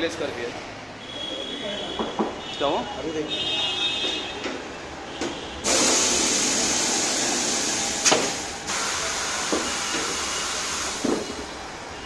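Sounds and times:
compressed air hissing: 0:05.6 - 0:11.4.

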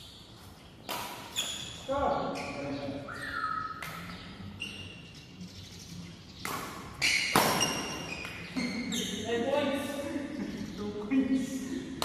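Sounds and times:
racket hitting shuttlecock: 0:00.9 - 0:01.6, 0:06.4 - 0:08.7.

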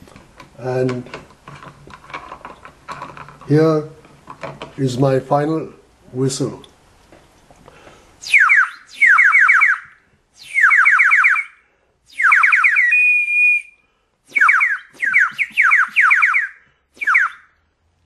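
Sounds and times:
plastic whistle chirps: 0:08.2 - 0:17.6.

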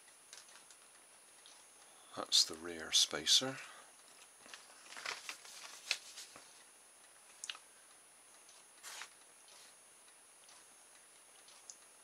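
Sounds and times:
paper sheet rustling: 0:04.4 - 0:06.6, 0:08.8 - 0:09.2.

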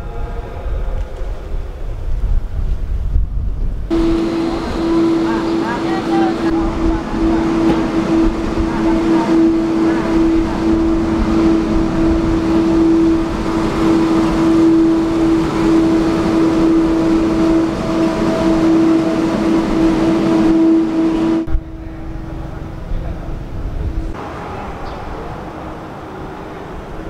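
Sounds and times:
road sweeper droning hum: 0:03.9 - 0:27.0.

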